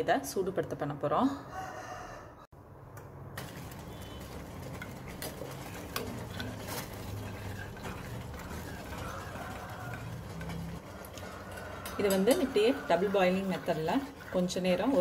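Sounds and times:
water boiling: 3.3s - 15.0s.

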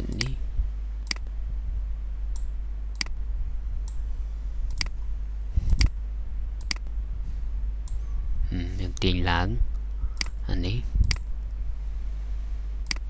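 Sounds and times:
low steady hum: 0.0s - 13.0s
computer mouse clicking: 2.3s - 3.2s, 4.7s - 5.0s, 6.6s - 6.9s, 9.8s - 10.4s.

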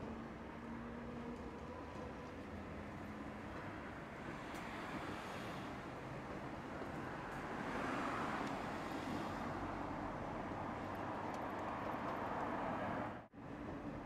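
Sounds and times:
tram wheels rumbling on rails: 0.1s - 9.5s.

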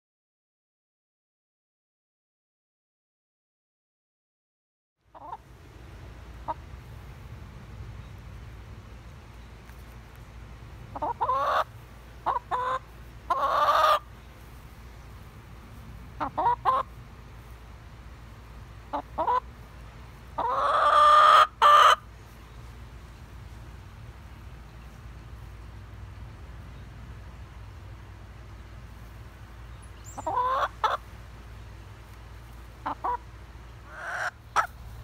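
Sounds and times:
chicken clucking: 5.1s - 5.4s, 10.9s - 14.1s, 16.2s - 17.0s, 18.9s - 19.5s, 20.3s - 22.1s, 30.0s - 31.1s, 32.5s - 34.8s
chicken drawn-out call: 10.9s - 14.1s, 20.4s - 22.1s, 30.1s - 31.0s, 33.8s - 34.8s.

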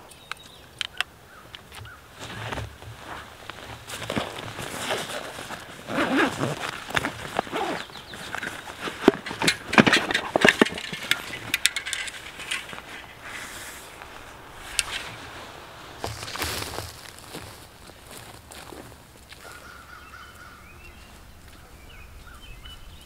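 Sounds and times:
nylon backpack fabric rustling: 2.1s - 19.6s
gear clicking and knocking: 5.9s - 13.1s.

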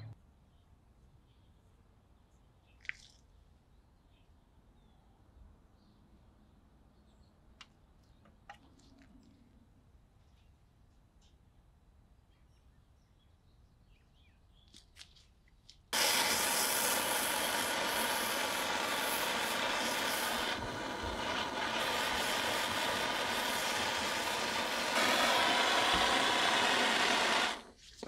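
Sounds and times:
gas torch hissing: 16.0s - 27.8s.

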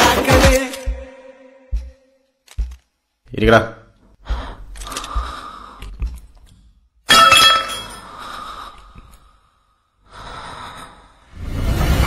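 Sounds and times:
glass shattering: 7.1s - 8.0s.

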